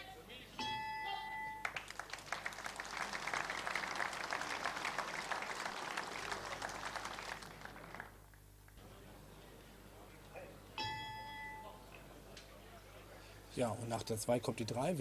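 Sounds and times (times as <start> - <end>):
ring bell: 0.6 - 1.7, 10.8 - 11.8
crowd applauding: 1.6 - 8.4.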